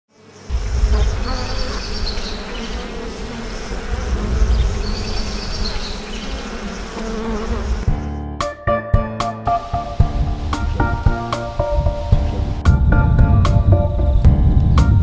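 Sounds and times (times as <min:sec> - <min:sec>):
honeybees buzzing: 0:00.1 - 0:08.0.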